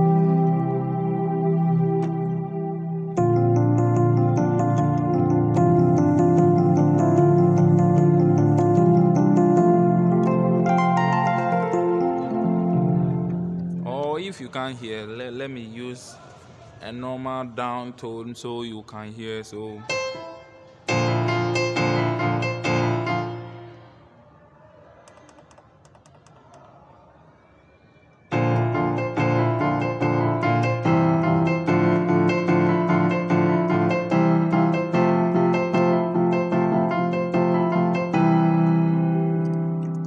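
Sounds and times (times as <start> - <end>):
keyboard piano block chords: 0.0 - 14.5, 19.9 - 24.0, 28.3 - 40.0.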